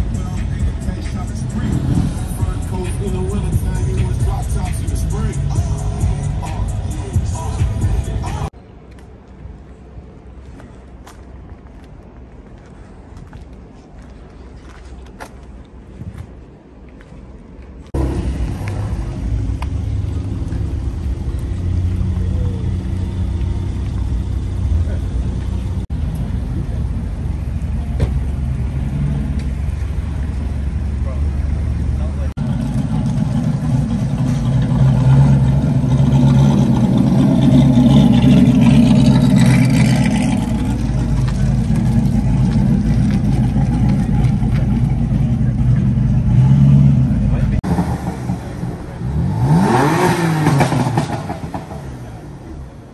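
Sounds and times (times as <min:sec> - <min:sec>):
car engine rumble: 0:00.0 - 0:52.9
low background rumble: 0:09.4 - 0:49.4.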